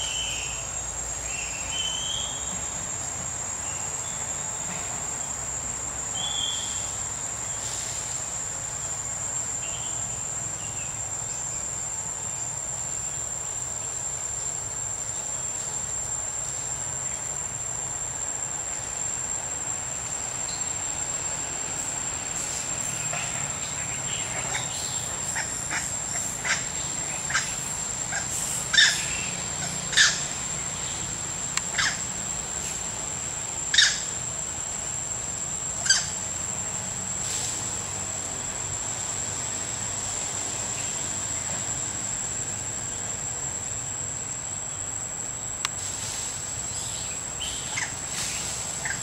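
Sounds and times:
high-pitched insect drone: 0.0 - 49.0
sharp chirping calls: 27.3 - 30.3.

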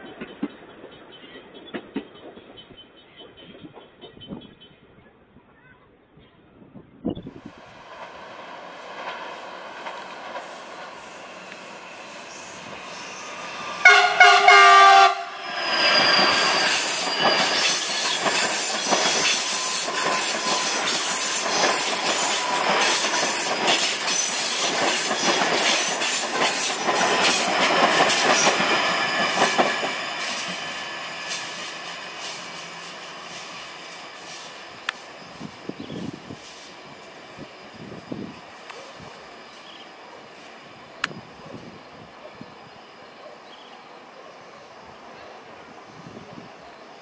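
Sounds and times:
train wheels rumbling on rails: 0.0 - 4.6, 7.2 - 43.4
train horn blast: 13.7 - 15.4.

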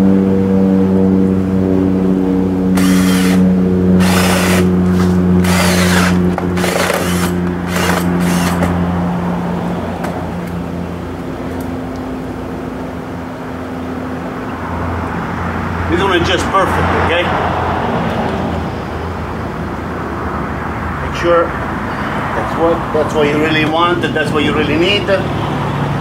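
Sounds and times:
drill bit scraping plastic: 2.8 - 3.4, 4.0 - 8.8
cordless drill running: 2.8 - 8.8.

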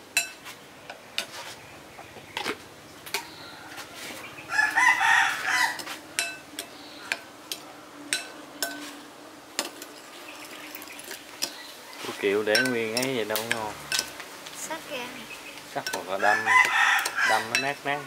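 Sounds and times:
rooster crowing: 3.4 - 6.0, 11.5 - 12.2, 16.1 - 17.6
utensils clinking against dishes: 5.8 - 9.0, 10.7 - 14.2, 15.8 - 16.4, 17.0 - 17.9.

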